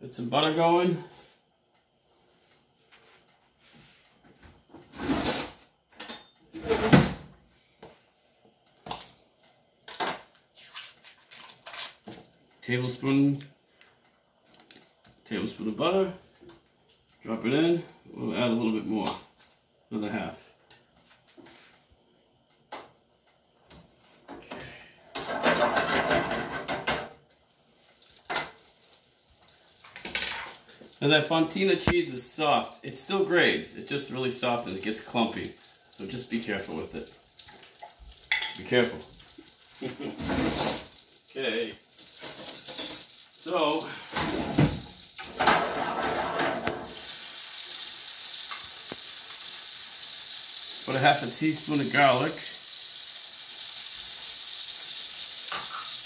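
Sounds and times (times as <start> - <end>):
drawer sliding open and shut: 6.6 - 7.3, 44.2 - 46.9
butter sizzling in a skillet: 27.4 - 44.3, 44.9 - 56.0.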